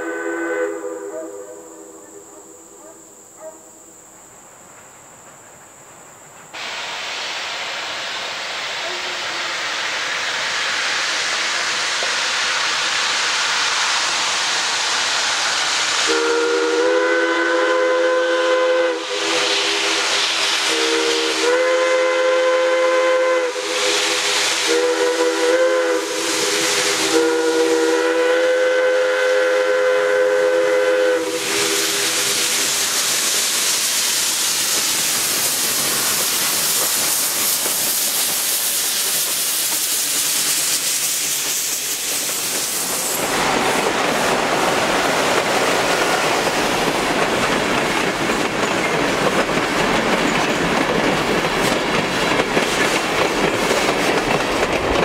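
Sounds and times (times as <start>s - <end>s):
chime steam whistle blasts: 0.0s - 2.3s, 6.6s - 12.0s, 15.9s - 43.2s
steady hiss of steam: 0.0s - 55.0s.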